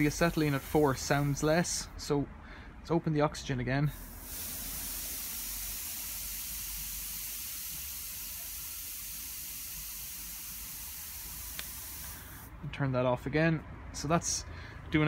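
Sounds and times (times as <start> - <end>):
oxygen hissing through torch: 0.0 - 1.4, 3.9 - 12.5.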